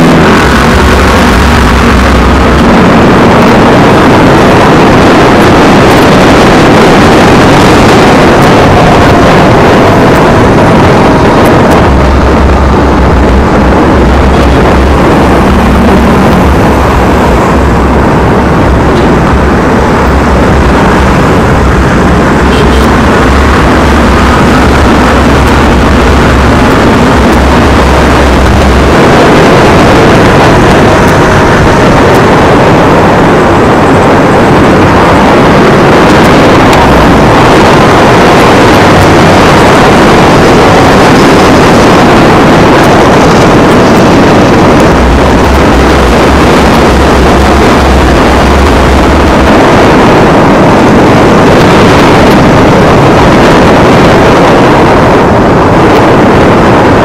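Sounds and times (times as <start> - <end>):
traffic passing: 0.0 - 57.0
wind and road noise: 0.0 - 57.0.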